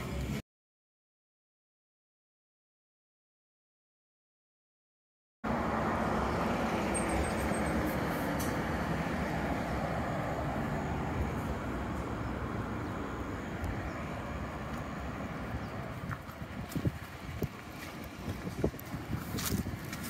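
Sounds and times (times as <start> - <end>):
passing road traffic: 0.0 - 0.4, 5.4 - 20.0.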